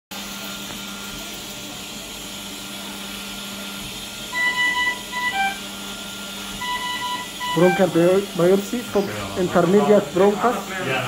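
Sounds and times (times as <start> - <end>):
electrical machine hum: 0.1 - 11.0
short electronic beeps: 4.3 - 5.7, 6.6 - 8.1.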